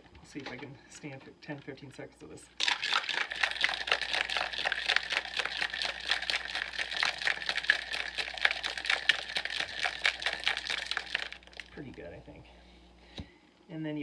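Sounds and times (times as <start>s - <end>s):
ice rattling in cocktail shaker: 2.6s - 11.9s.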